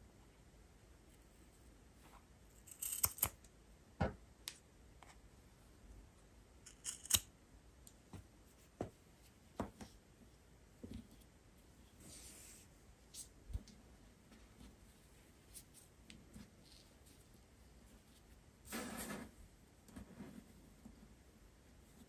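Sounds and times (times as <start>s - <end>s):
scissors snipping cord: 2.7s - 3.4s.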